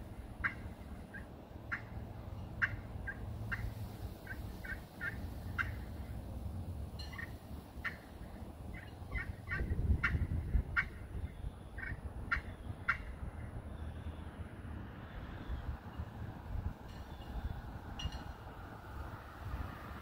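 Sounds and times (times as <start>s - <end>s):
turkey call yelps and clucks: 0.4s - 2.0s, 2.6s - 5.8s, 8.7s - 10.2s
wind rumbling on microphone: 7.6s - 20.0s.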